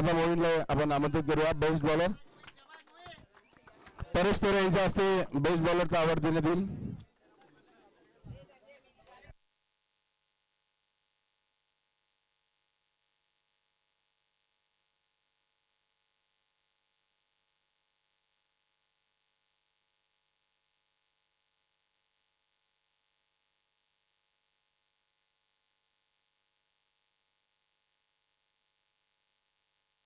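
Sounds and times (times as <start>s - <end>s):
faint steady hiss: 0.0s - 30.0s.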